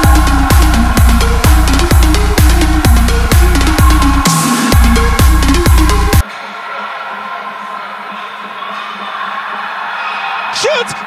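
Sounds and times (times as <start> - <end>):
crowd hubbub: 6.2 - 11.0.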